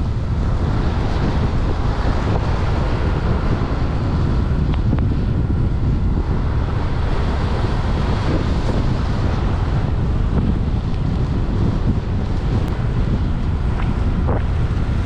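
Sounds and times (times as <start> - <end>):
deep rumble: 0.0 - 15.0
wind buffeting microphone: 0.0 - 15.0.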